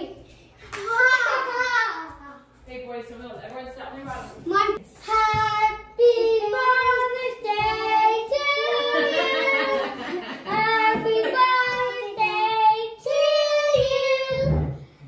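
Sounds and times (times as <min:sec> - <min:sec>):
children singing: 0:06.0 - 0:14.8.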